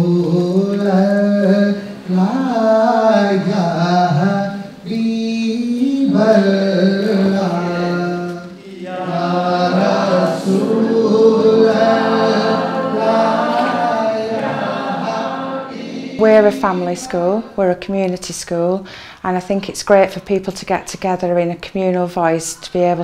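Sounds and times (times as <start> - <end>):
man singing: 0.0 - 10.2
breaths: 18.8 - 19.3.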